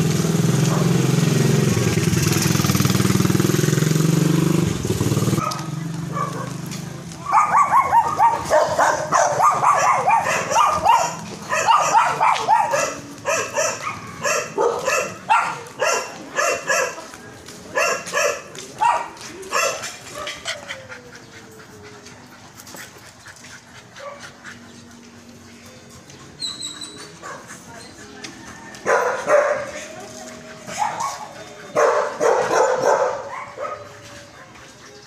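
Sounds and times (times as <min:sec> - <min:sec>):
dog yapping: 0:05.4 - 0:06.6, 0:07.2 - 0:17.0, 0:30.7 - 0:34.0.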